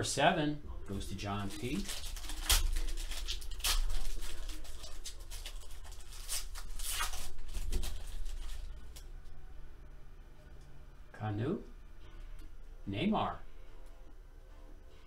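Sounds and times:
foil wrapper crinkling and tearing: 0:01.3 - 0:09.1.

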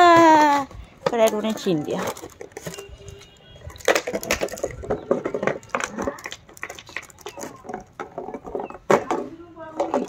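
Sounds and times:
dog chewing plastic bottle: 0:01.2 - 0:09.1.

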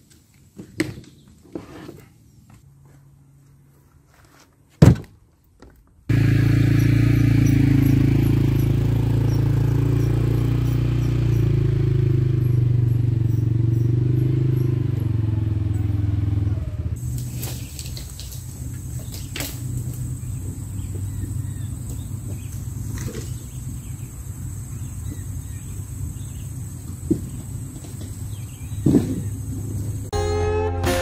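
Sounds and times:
firewood dropped on wood: 0:04.7 - 0:05.8
atv engine running: 0:06.1 - 0:30.2.

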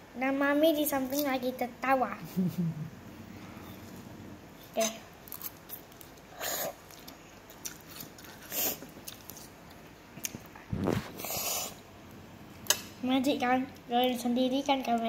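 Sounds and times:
chewing: 0:05.3 - 0:10.5
child slurping noodles: 0:06.3 - 0:06.8, 0:10.8 - 0:11.8.

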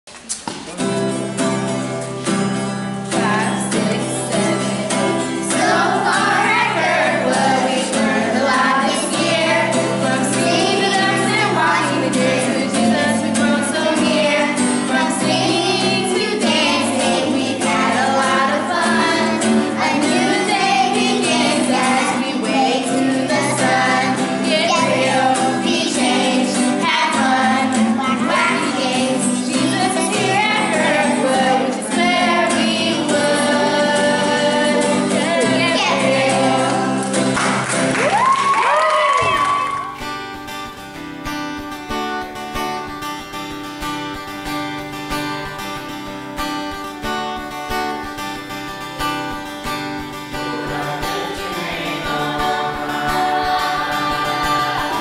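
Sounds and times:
strummed acoustic guitar: 0:00.2 - 0:38.2, 0:39.2 - 0:55.0
children and women singing: 0:03.1 - 0:37.9, 0:50.3 - 0:55.0.

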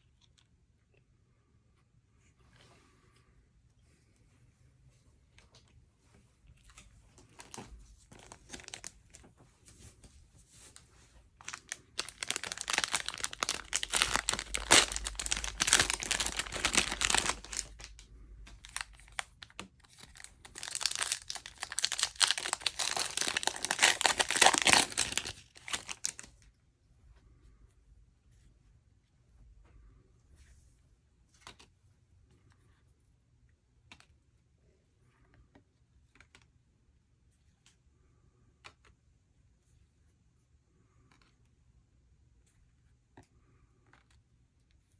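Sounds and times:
foil wrapper crinkling and tearing: 0:07.4 - 0:09.0, 0:11.4 - 0:26.4.

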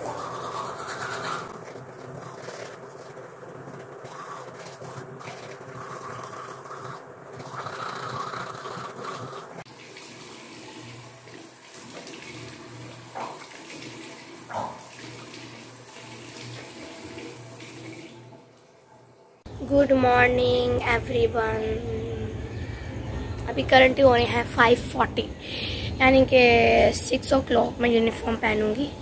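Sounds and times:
tap water running into sink: 0:09.7 - 0:18.3.

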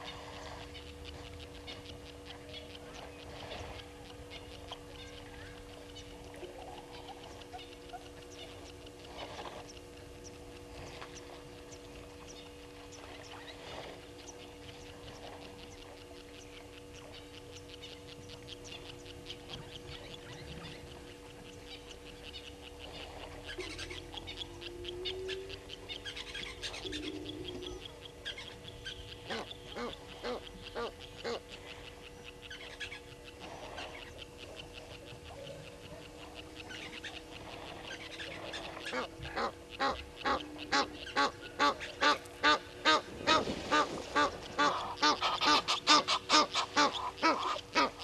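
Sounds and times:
steady low hum: 0:00.0 - 0:48.0
louder bird calls: 0:16.4 - 0:48.0.

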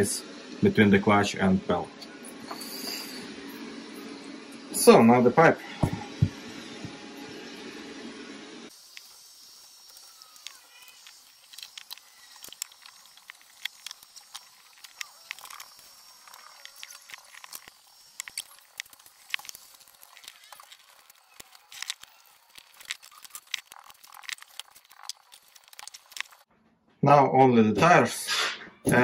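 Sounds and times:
small parts clicking and tapping: 0:08.7 - 0:26.4.

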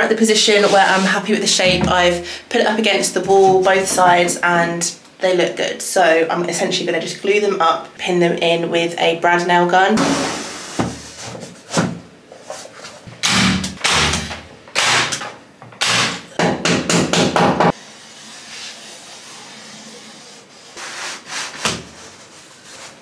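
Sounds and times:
hammer knocking on wall panelling: 0:01.6 - 0:02.3, 0:16.4 - 0:17.8.

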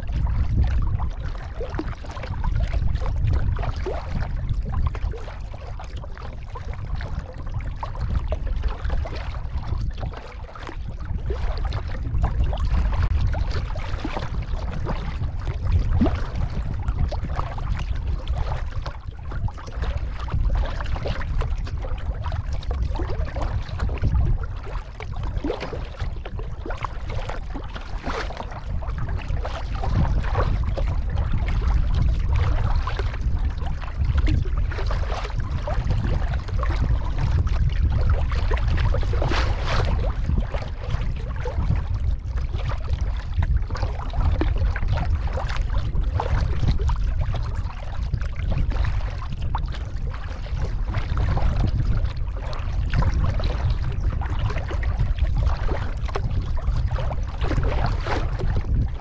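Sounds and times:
steady low rumble: 0:00.0 - 0:59.0
water sloshing along hull: 0:00.0 - 0:59.0
paddle strokes splashing: 0:04.9 - 0:31.7.

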